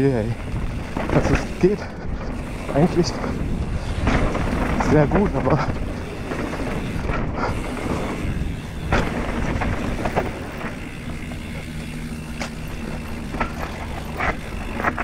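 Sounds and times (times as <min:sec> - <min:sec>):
bike rattling over bumps: 0:00.0 - 0:15.0
bike tyres rumbling on dirt: 0:00.0 - 0:15.0.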